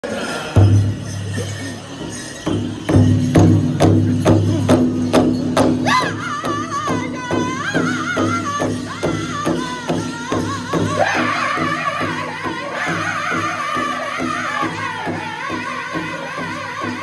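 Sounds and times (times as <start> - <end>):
large hide drum beating: 0.6 - 17.0
high-pitched voice singing: 5.9 - 17.0.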